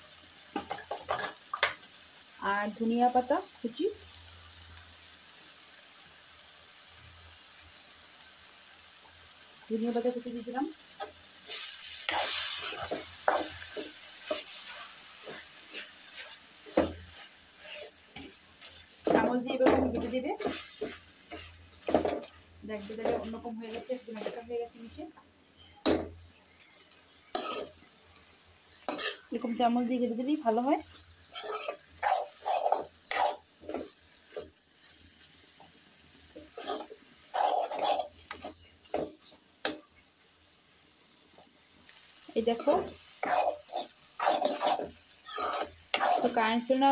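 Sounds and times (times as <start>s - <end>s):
frying sizzle: 0.0s - 46.9s
metal spatula scraping pan: 11.0s - 24.4s, 27.3s - 27.8s, 28.9s - 29.3s, 30.9s - 34.4s, 36.4s - 38.6s, 42.4s - 46.5s.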